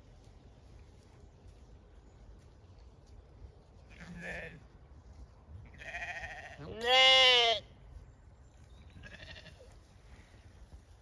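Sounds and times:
sheep bleating: 3.9s - 4.6s, 5.7s - 7.7s, 9.0s - 9.8s.

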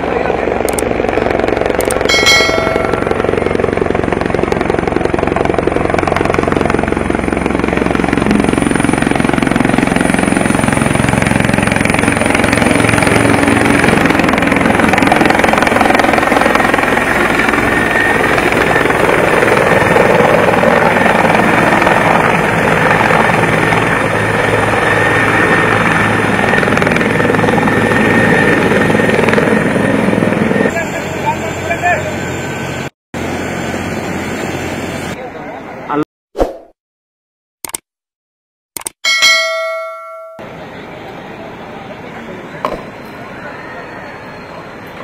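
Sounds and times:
high turbine whine: 0.0s - 35.9s
helicopter rotor and engine: 0.0s - 36.0s, 38.8s - 45.0s.

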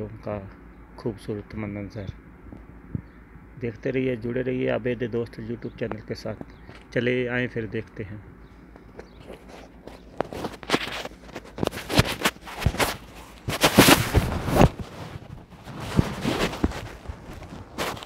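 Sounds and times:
footsteps on sand: 8.8s - 18.0s.

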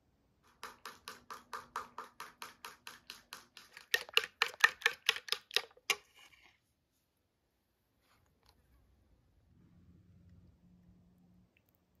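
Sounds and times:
spoon tapping against bowl: 0.6s - 6.0s.

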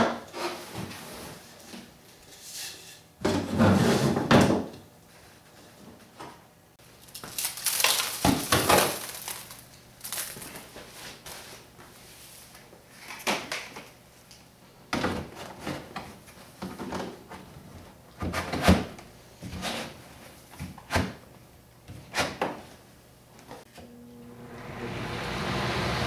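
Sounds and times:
plastic garbage can clunks and scrapes: 3.2s - 4.7s.

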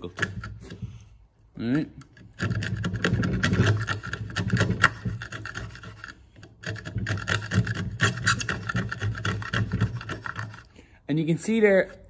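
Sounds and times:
wood chisel scraping cuts: 2.3s - 10.7s.

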